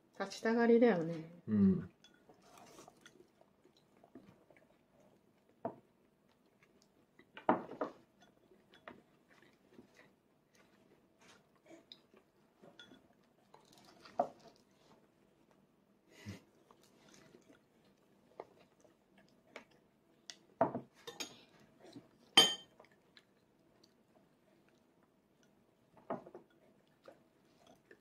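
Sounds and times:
quiet chewing: 1.9s - 28.0s.

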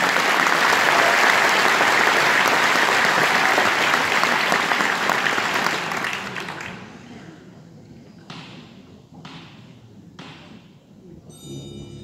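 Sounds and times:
large audience applauding: 0.0s - 7.0s.

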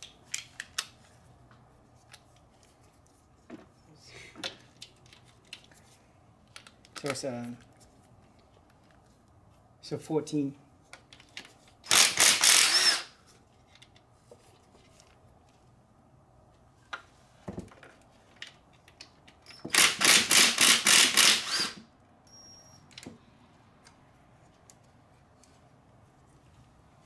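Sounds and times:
socket ratchet clicking: 11.9s - 13.1s, 19.4s - 21.8s.

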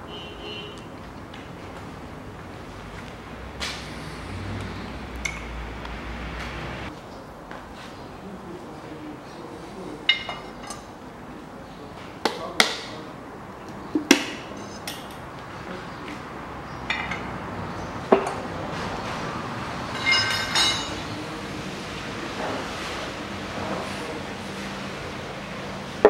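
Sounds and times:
metallic ringing clatter: 19.9s - 21.0s.

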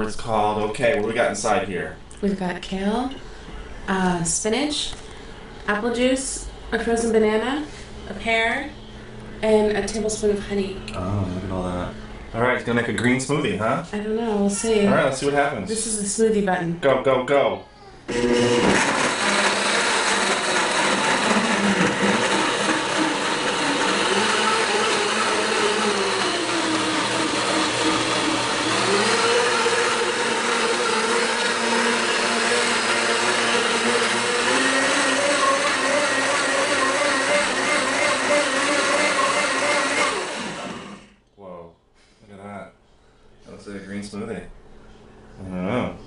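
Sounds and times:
blender motor running: 18.1s - 41.1s.

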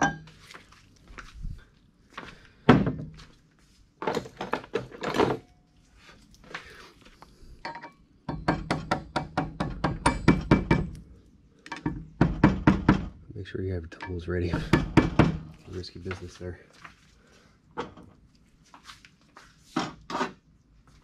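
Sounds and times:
small hammer tapping metal: 7.7s - 11.0s.

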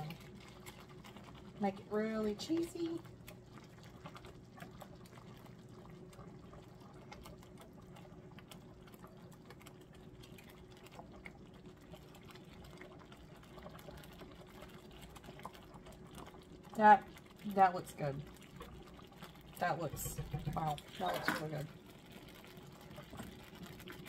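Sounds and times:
whisk stirring thick sauce: 0.0s - 3.3s.

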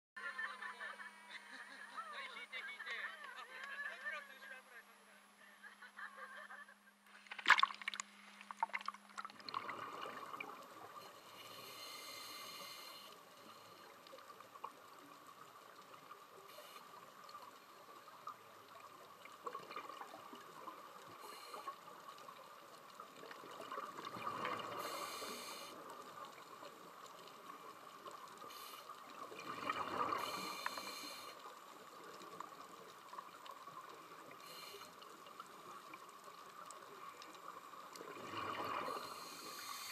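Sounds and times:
regulator hissing inhale: 10.9s - 14.0s, 16.4s - 17.1s, 21.2s - 22.0s, 24.6s - 26.1s, 28.4s - 29.1s, 30.0s - 31.6s, 34.3s - 35.0s, 38.7s - 39.9s
bubbling exhales: 29.2s - 31.3s.

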